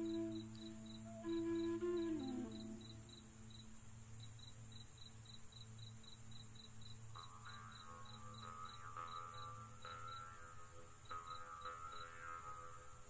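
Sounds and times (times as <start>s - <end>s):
soft melodic music: 0.0s - 4.7s
crickets chirping: 0.0s - 13.0s
high insect hiss: 0.0s - 13.0s.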